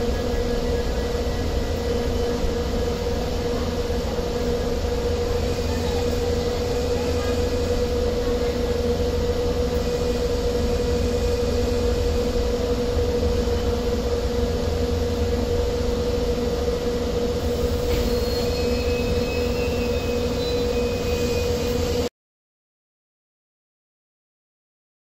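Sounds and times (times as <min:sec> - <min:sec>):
steady hum: 0:00.0 - 0:22.1
train wheels rumbling on rail: 0:00.0 - 0:22.1
high-pitched wheel squeals: 0:17.5 - 0:22.1.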